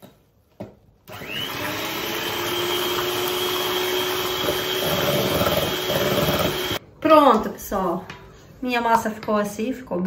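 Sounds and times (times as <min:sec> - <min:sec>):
electric hand mixer whine: 0:01.1 - 0:06.8.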